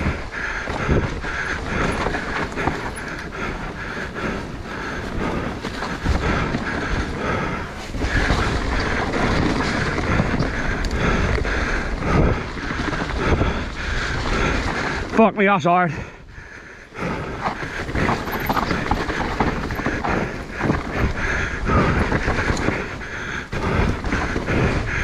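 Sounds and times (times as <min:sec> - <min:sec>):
mountain bike rattling: 0:00.0 - 0:25.0
tyres on muddy ground: 0:00.0 - 0:25.0.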